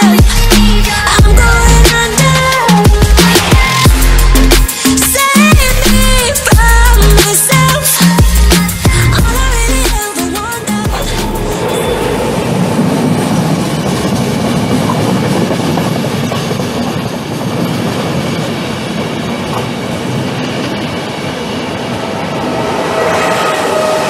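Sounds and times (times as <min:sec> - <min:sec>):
train wheels rolling on rail: 0:10.3 - 0:24.0
clickety-clack over rail joints: 0:13.0 - 0:21.5.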